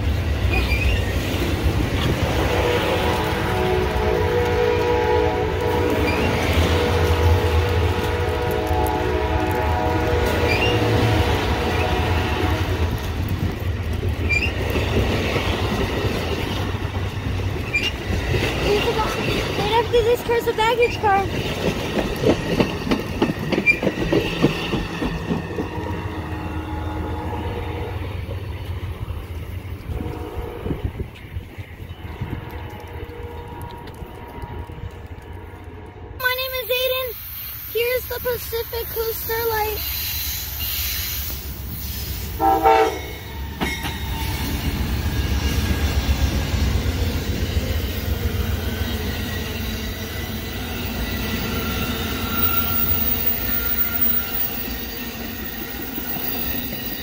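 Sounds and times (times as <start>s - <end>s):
train cars rumbling past: 0.0s - 57.0s
train horn chord: 2.6s - 12.8s, 26.7s - 28.0s, 29.9s - 30.9s, 42.4s - 43.4s
train wheels clicking over rail joints: 12.8s - 26.3s.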